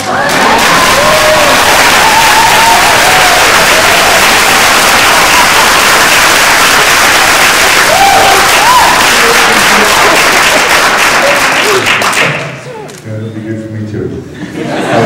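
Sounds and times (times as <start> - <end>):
audience applauding and cheering: 0.0 - 12.7
voices whooping: 0.1 - 4.4, 7.8 - 9.2.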